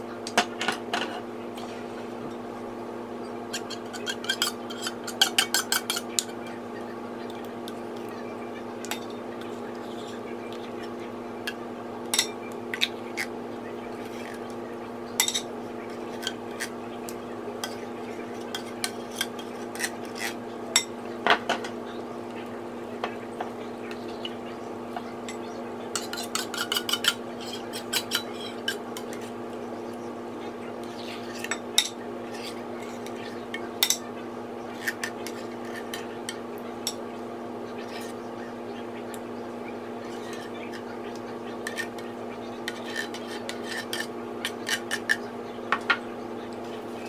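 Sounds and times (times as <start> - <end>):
steady low hum: 0.0 - 47.0
metal spoon clinking and scraping: 3.5 - 6.4, 15.2 - 15.5, 18.4 - 20.9, 25.3 - 29.3, 41.6 - 42.0, 42.6 - 45.3.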